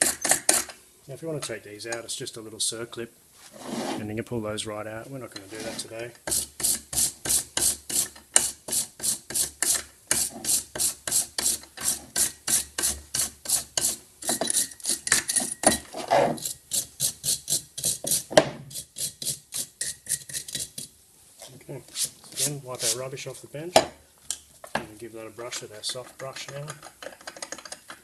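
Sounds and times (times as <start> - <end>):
wire brush scrubbing metal: 21.9 - 23.1.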